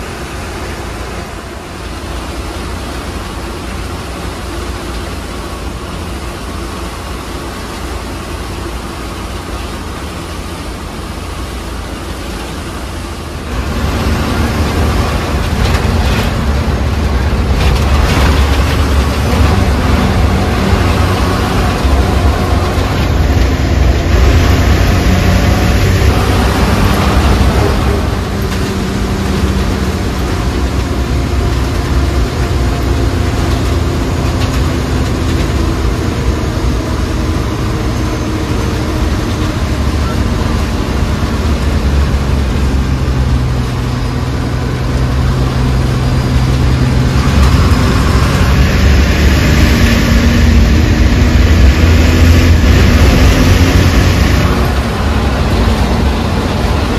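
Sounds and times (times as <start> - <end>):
road noise: 0.0 - 56.9
vehicle engine under load: 0.0 - 56.9.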